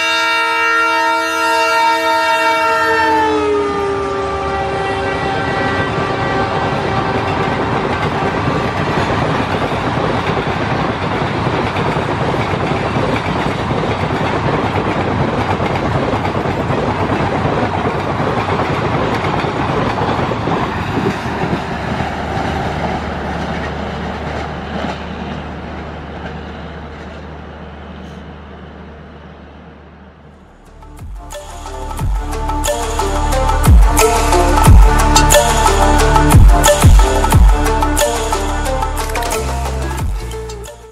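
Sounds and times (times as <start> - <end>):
train passing rumble: 0.0 - 40.9
wheel clatter on rails: 7.1 - 27.3.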